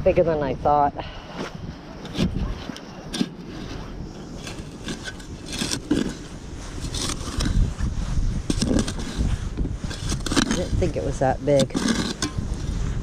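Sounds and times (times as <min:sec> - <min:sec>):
metal digger scraping soil: 0:02.0 - 0:13.0.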